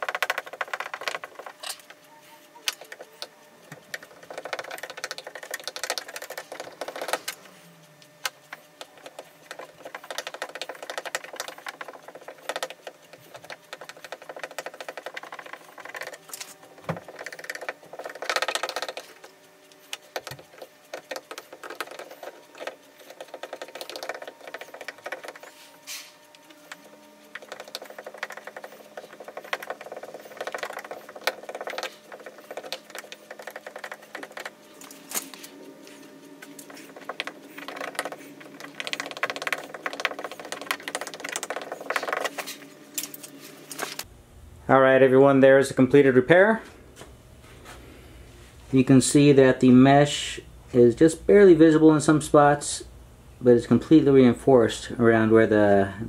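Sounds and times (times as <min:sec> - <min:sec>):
plastic welding iron crackling: 0:00.0 - 0:44.1.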